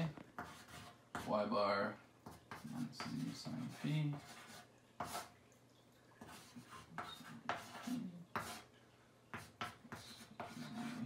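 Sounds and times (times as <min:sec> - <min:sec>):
chalk tapping on chalkboard: 0:00.4 - 0:01.4, 0:02.2 - 0:05.3, 0:06.2 - 0:08.6, 0:09.3 - 0:11.0.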